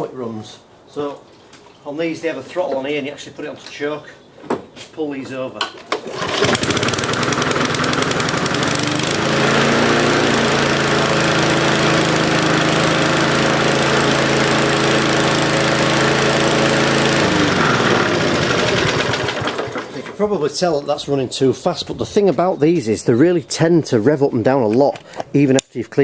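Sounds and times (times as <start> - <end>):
lawnmower engine running fast: 6.0 - 20.2.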